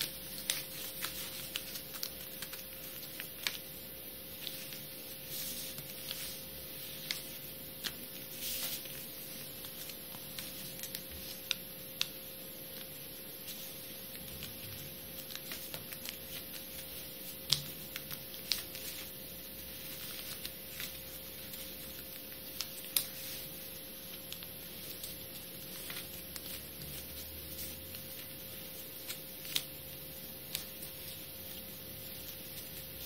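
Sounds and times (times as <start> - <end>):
paper rustling: 0.0 - 12.1, 12.7 - 33.0
steady hum: 0.0 - 33.0
paper fold clicks and taps: 14.1 - 19.1.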